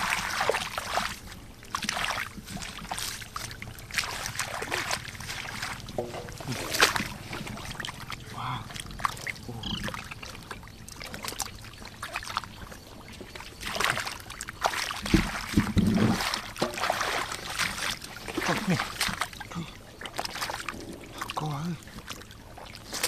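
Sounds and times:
hands splashing in muddy water: 0:00.0 - 0:10.2, 0:13.6 - 0:21.4.

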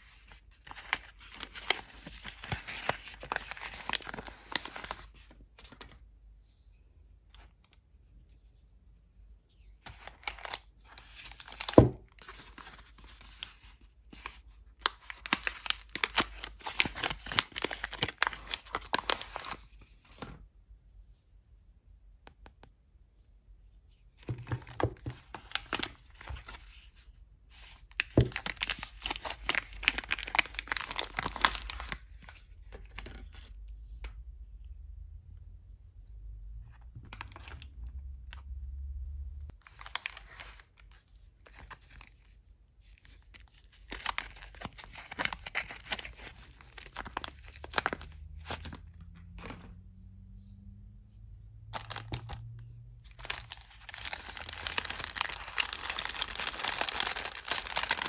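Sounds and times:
paper wrappers tearing and crinkling: 0:00.6 - 0:05.2, 0:09.9 - 0:13.1, 0:14.8 - 0:19.6, 0:28.1 - 0:32.0, 0:43.4 - 0:48.8, 0:51.8 - 0:58.0
paper wrap unfolding: 0:00.6 - 0:05.9, 0:51.8 - 0:58.0.

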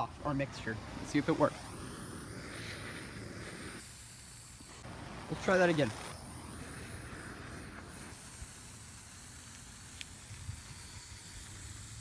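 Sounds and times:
torch flame hissing: 0:00.0 - 0:12.0.

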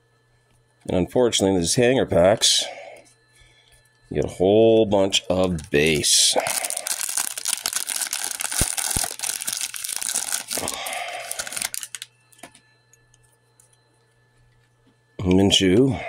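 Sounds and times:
foil wrapper crinkling and tearing: 0:05.2 - 0:12.5.

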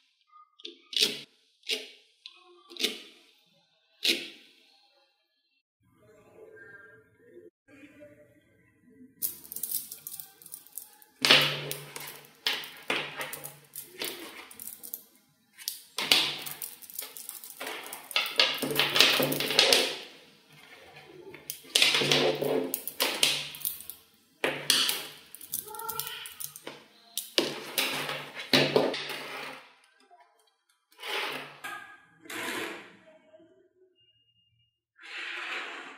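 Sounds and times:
magnetic balls clicking: 0:09.2 - 0:15.0, 0:15.6 - 0:20.2, 0:21.3 - 0:28.5.

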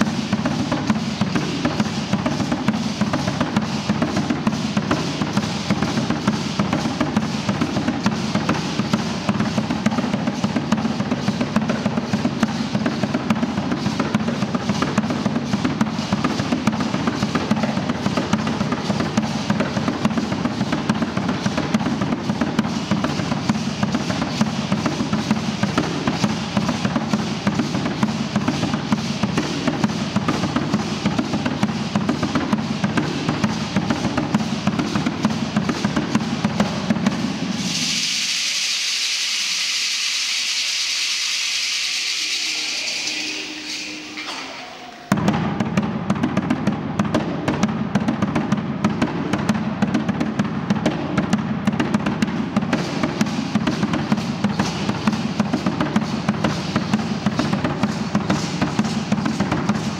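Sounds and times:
deep drum beaten fast: 0:00.0 - 0:38.0, 0:42.2 - 0:59.9
high rattling shake: 0:00.0 - 0:45.4.

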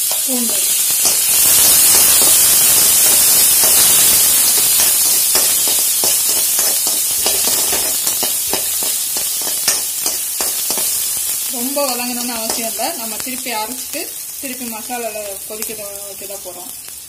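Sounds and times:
metal spoon scraping a pan: 0:00.0 - 0:11.2
vegetables sizzling in hot oil: 0:00.0 - 0:17.0.

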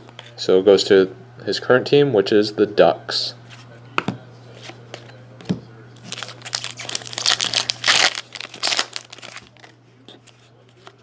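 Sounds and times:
plastic wrapper crinkling: 0:06.0 - 0:09.7.

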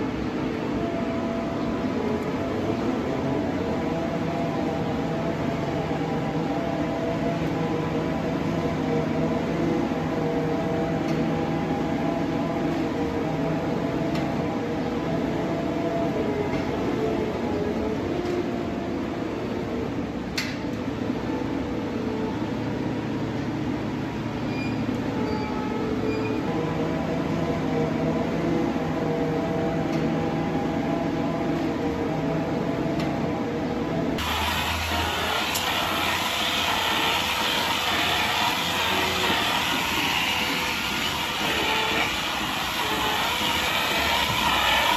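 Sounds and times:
machinery hum with held tones: 0:00.0 - 0:44.9
diesel engine running: 0:26.6 - 0:44.9.

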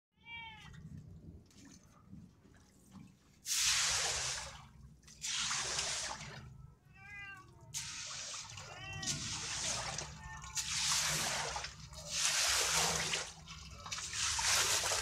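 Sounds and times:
cat meowing: 0:00.2 - 0:00.8, 0:06.9 - 0:07.8, 0:08.6 - 0:10.7
water splashing and sloshing: 0:00.2 - 0:15.0.

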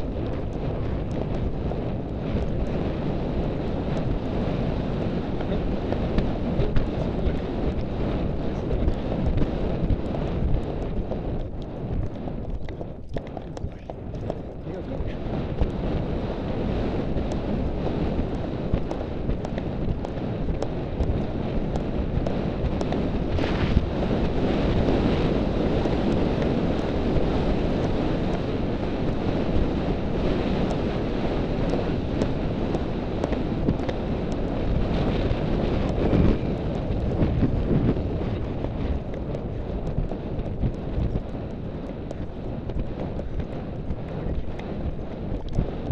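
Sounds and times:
wind buffeting microphone: 0:00.0 - 0:45.9
faint clicks: 0:08.8 - 0:16.0, 0:17.2 - 0:23.9, 0:29.1 - 0:45.9.

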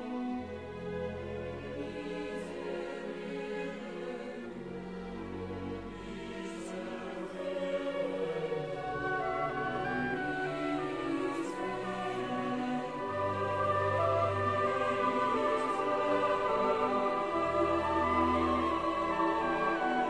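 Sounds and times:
choir singing held chords: 0:01.2 - 0:20.0
orchestra playing: 0:08.2 - 0:20.0.

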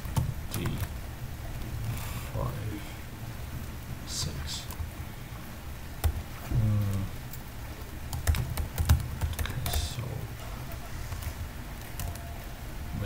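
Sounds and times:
keyboard typing: 0:08.1 - 0:12.5.

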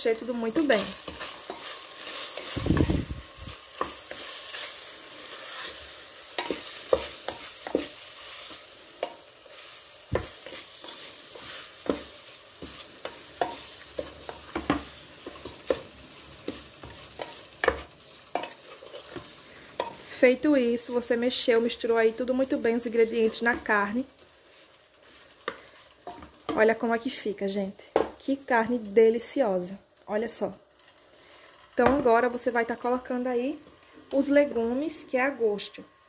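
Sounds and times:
meat sizzling: 0:00.0 - 0:35.8
wooden spoon scraping a pot: 0:00.4 - 0:20.3.

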